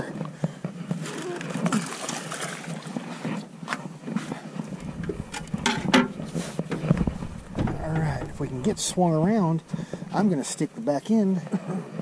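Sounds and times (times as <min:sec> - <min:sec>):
feet scuffing metal boat floor: 0:05.0 - 0:10.1.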